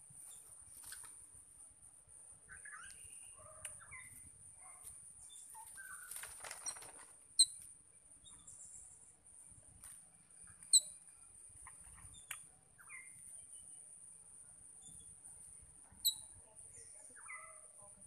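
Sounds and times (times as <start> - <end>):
wings fluttering: 0.2 - 1.3, 5.5 - 7.2
birds chirping: 2.1 - 9.5, 10.2 - 18.0.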